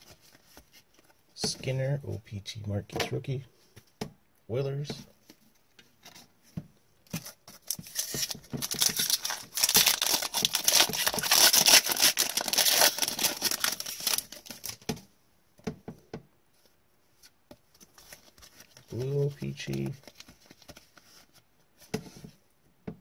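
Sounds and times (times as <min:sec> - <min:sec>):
cards clicking and shuffling: 0:07.1 - 0:15.0, 0:17.8 - 0:22.3
card pack wrapper crackling: 0:07.6 - 0:14.8.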